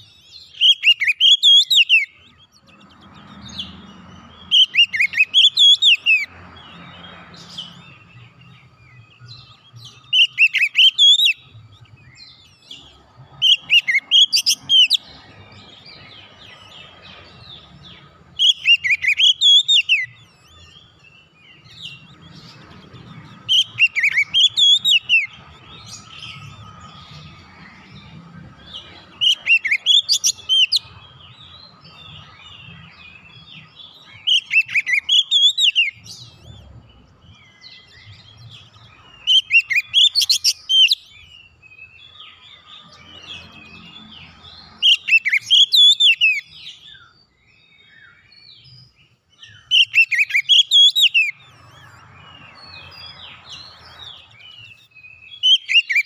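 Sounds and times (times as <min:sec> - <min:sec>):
bird singing whistled phrases: 0:00.0 - 0:02.4, 0:04.4 - 0:06.3, 0:09.2 - 0:11.5, 0:18.4 - 0:20.4, 0:23.5 - 0:25.4, 0:33.4 - 0:36.3, 0:44.8 - 0:47.1, 0:49.4 - 0:51.4, 0:54.4 - 0:56.0
soft bird twittering: 0:00.0 - 0:56.0.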